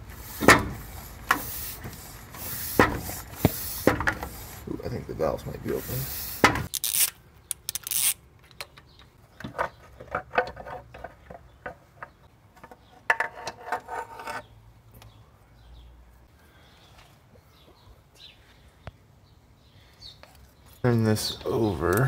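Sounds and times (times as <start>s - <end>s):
short air hisses: 0.2s - 4.6s, 5.8s - 6.7s
tools clicking and rattling: 6.4s - 13.3s.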